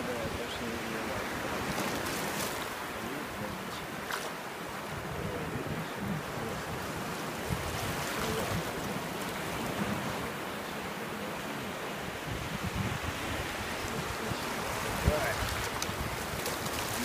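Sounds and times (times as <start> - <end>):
surf washing over sand: 0.0 - 17.0.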